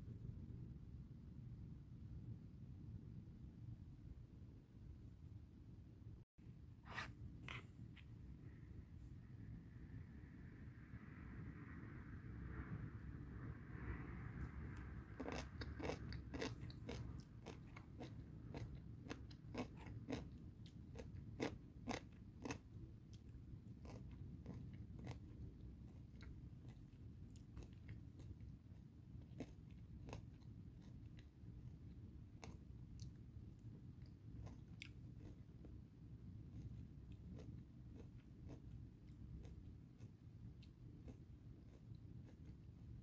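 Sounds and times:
low steady hum: 0.0 - 43.0
person chewing crunchy food: 14.8 - 28.6, 29.2 - 35.8, 36.4 - 43.0.

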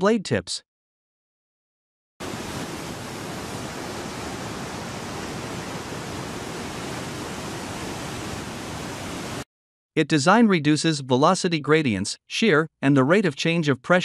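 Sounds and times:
steady rushing hiss: 2.2 - 9.4.

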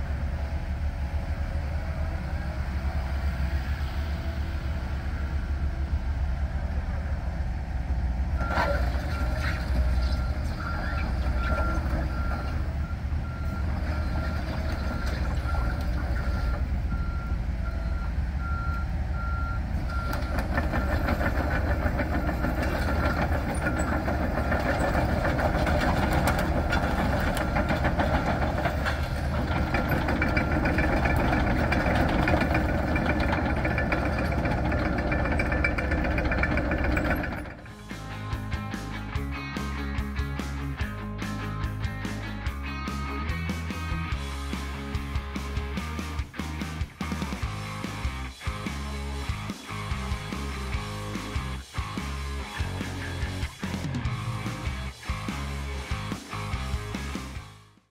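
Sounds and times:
excavator diesel engine running: 0.0 - 57.5
steel tracks clanking: 8.3 - 16.9, 19.7 - 38.5.

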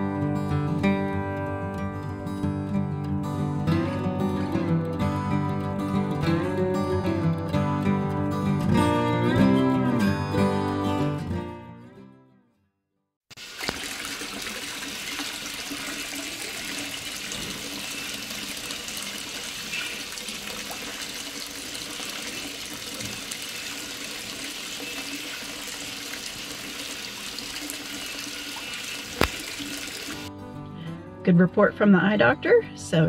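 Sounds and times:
rushing splashing water: 13.3 - 30.3.

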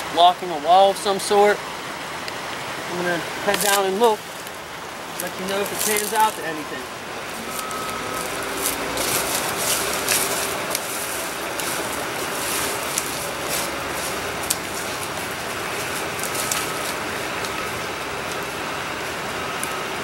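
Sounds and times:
steady rushing background noise: 0.0 - 20.0
footsteps crunching dry leaves: 3.4 - 19.7
twigs snapping: 3.5 - 4.6, 5.2 - 6.4, 7.5 - 18.6.

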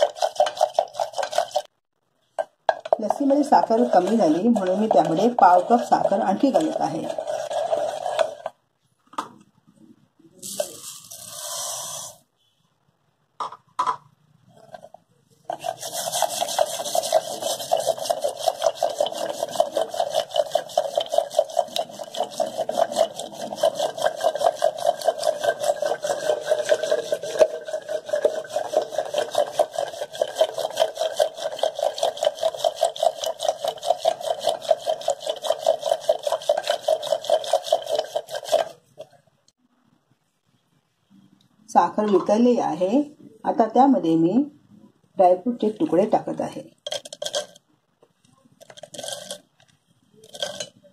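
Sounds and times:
wooden churner swishing in steel bowl: 0.0 - 1.7, 2.8 - 8.5, 15.5 - 38.8.

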